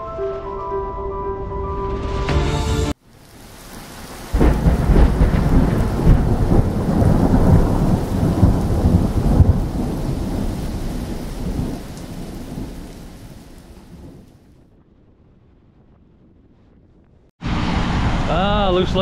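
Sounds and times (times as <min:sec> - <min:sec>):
rain hissing: 0:02.9 - 0:14.5
thunder rumbling: 0:03.1 - 0:19.0.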